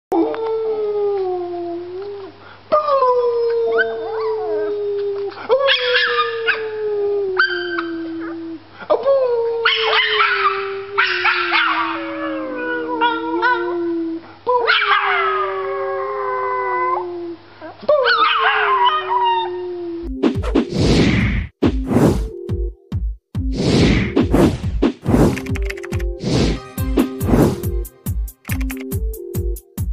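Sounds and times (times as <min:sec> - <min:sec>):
puppy howling: 0:02.8 - 0:20.1
person howling: 0:10.3 - 0:17.4.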